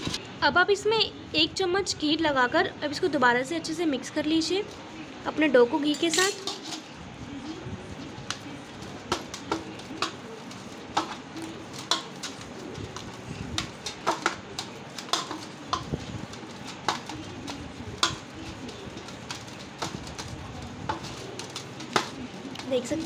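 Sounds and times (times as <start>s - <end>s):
dough slapping in steel bowl: 7.9s - 23.0s.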